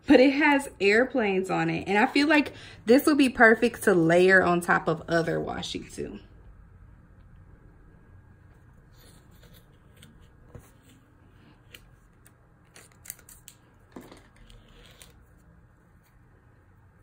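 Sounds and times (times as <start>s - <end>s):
light rustling of tape: 8.4s - 16.4s.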